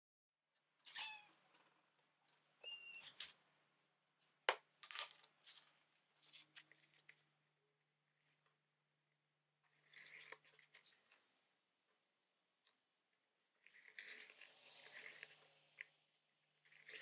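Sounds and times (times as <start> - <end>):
short high squeak: 0.8 - 1.5, 2.4 - 3.3
paper rustling: 4.2 - 7.3.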